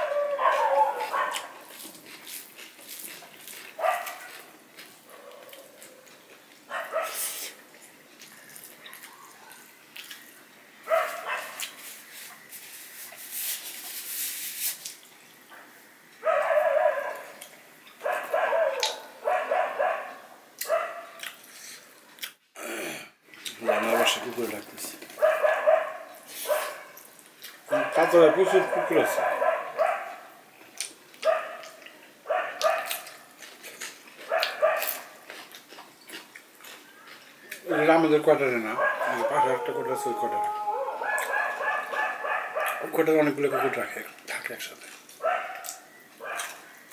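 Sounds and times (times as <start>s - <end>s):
dogs barking: 0.0s - 1.7s, 3.8s - 4.5s, 5.1s - 7.4s, 10.8s - 11.7s, 15.6s - 21.2s, 23.6s - 24.5s, 25.1s - 27.0s, 27.7s - 30.4s, 31.2s - 33.4s, 34.2s - 35.4s, 38.6s - 44.0s, 45.2s - 46.7s.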